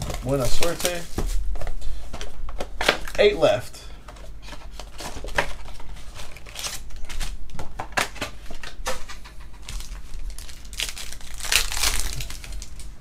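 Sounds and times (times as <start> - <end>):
wrapper crinkling and tearing: 0.0 - 1.1, 4.8 - 7.4, 9.6 - 13.0.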